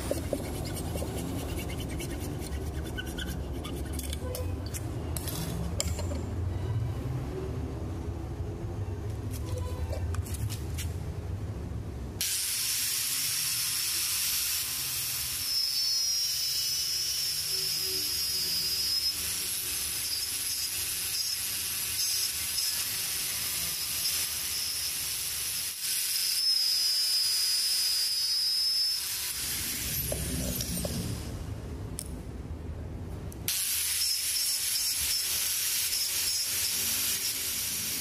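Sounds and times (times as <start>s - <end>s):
angle grinder cutting steel rod: 0.0s - 5.5s, 12.2s - 31.0s, 33.5s - 38.0s.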